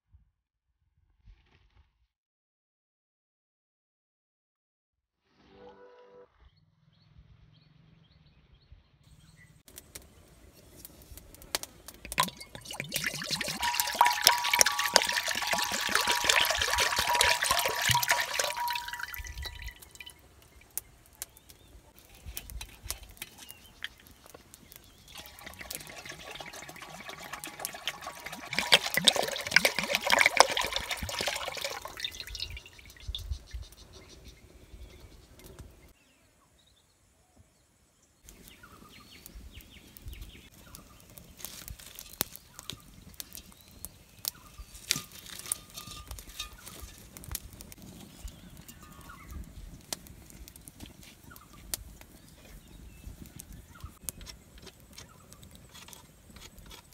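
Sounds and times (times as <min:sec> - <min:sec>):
milk pouring into a pan: 0:12.1 - 0:20.1, 0:25.0 - 0:33.2.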